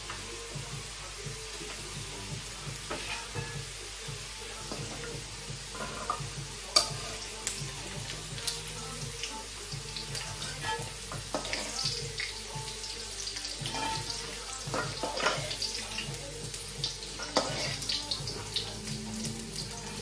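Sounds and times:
potato slices sizzling in oil: 0.0 - 20.0
metal spoon scraping wok: 2.9 - 3.6, 5.7 - 6.2, 13.7 - 14.3, 17.2 - 17.9.

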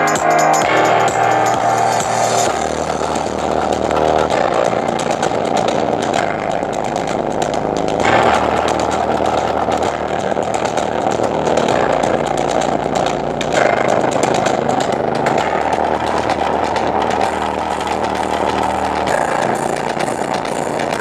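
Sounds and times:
rough speaker buzz: 0.0 - 21.0
speakers playing bass notes: 0.0 - 21.0.

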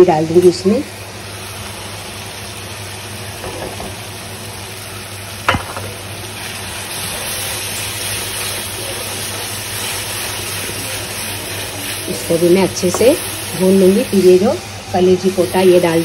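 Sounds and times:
masala sizzling in oil: 0.0 - 16.0
sharp metal knock: 5.5 - 5.9.

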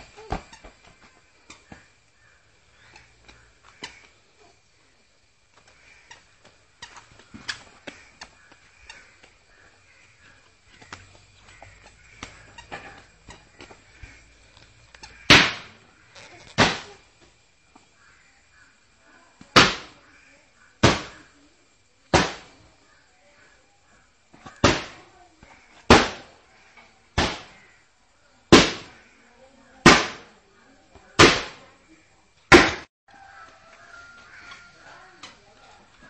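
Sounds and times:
ball bouncing on hard ground: 0.2 - 4.1, 5.5 - 9.6, 10.2 - 17.9.

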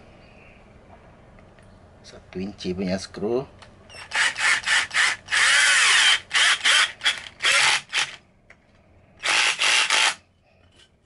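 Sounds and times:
cordless drill driving a screw: 3.9 - 8.2, 9.2 - 10.2.

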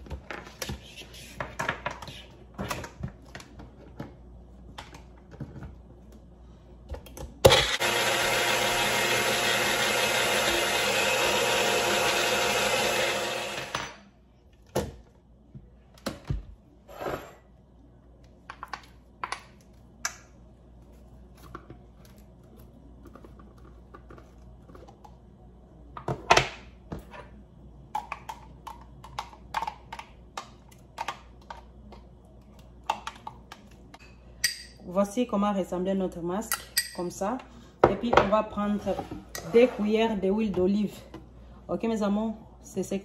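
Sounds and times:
blender running: 7.4 - 14.0.

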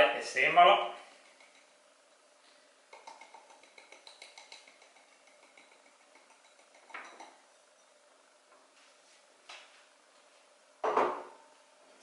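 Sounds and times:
ceramic bowls clinking: 3.0 - 8.0.

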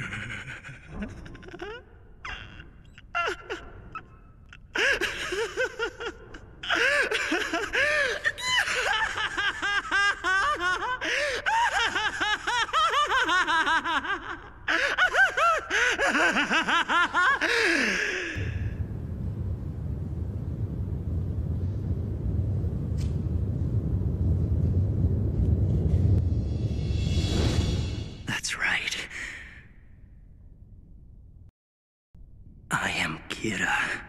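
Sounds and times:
man laughing: 0.0 - 3.8, 4.8 - 18.6
low rumble: 18.4 - 28.4.

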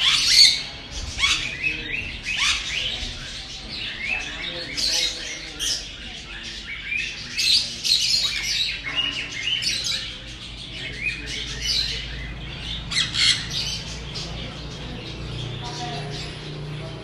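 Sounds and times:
monkeys screaming and squealing: 0.0 - 17.0.

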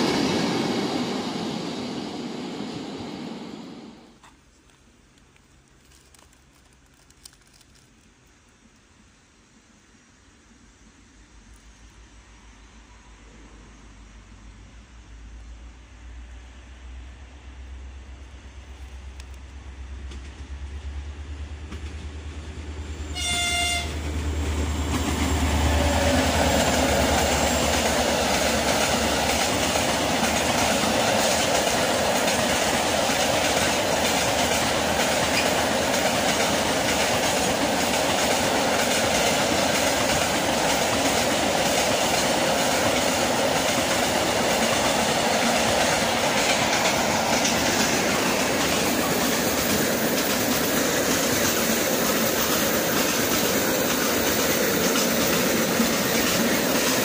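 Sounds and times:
train wheels running on rails: 0.0 - 4.3, 18.4 - 57.0
locomotive horn blast: 23.1 - 24.1.

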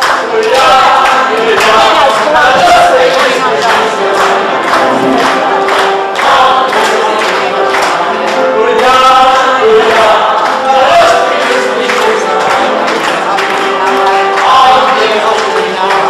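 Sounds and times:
mixed choir singing: 0.0 - 16.0
steady beat: 4.2 - 6.7.

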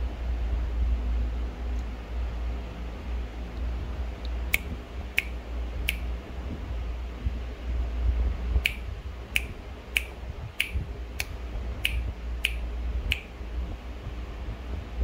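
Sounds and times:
steady low hum: 0.0 - 15.0
fingers snapping: 4.2 - 6.0, 8.6 - 13.3.

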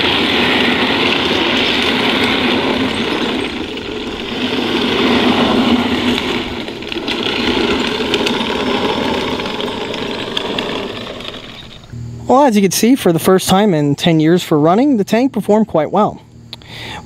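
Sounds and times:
electric drive running: 0.0 - 13.0
metal track links clattering: 0.1 - 11.9.

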